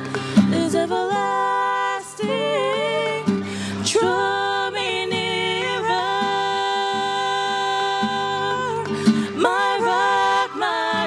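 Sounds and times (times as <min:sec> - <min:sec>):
acoustic guitar: 0:00.0 - 0:11.0.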